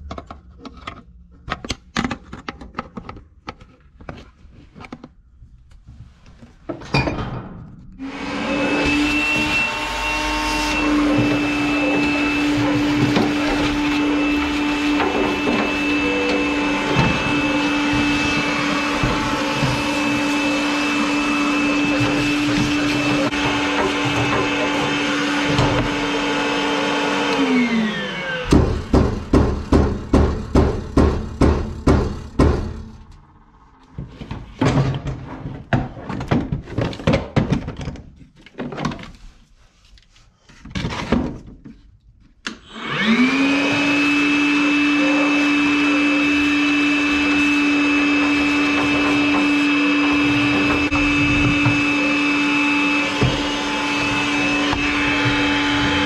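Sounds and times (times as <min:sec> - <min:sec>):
vacuum whine: 0:08.0 - 0:28.9, 0:42.5 - 0:56.0.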